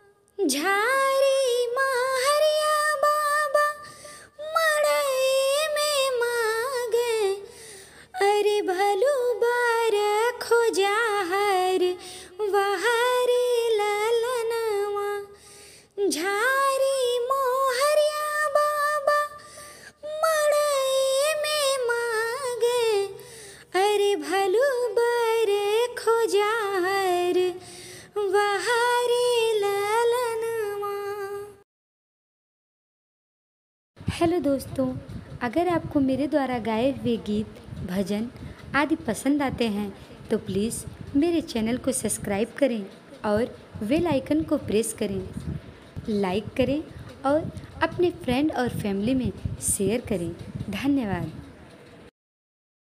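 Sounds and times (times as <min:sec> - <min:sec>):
woman singing folk song: 0:00.4 - 0:15.4, 0:16.0 - 0:31.6.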